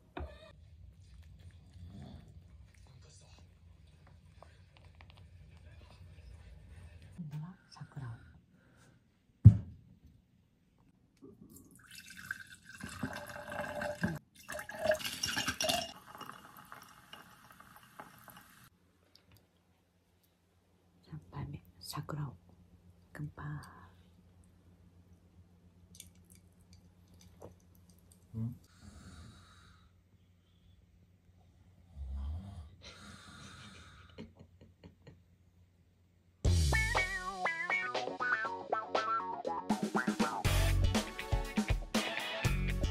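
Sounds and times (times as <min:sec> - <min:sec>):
liquid poured into a mug: 0:11.5 - 0:18.7
dog snoring: 0:31.8 - 0:34.0.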